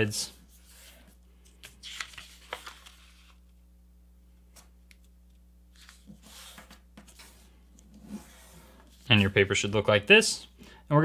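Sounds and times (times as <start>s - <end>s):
paper crinkling and rustling: 0.7s - 3.4s.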